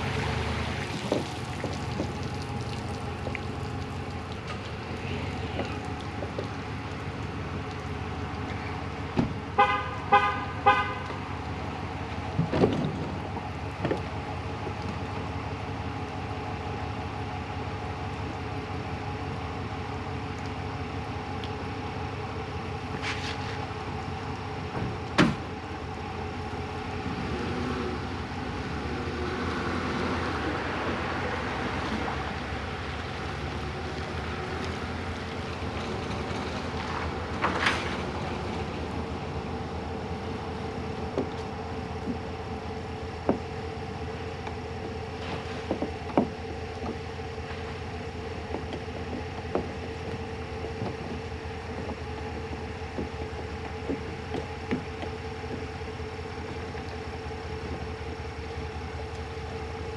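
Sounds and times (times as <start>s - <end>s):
vehicle horn toots: 9.6s - 11.2s.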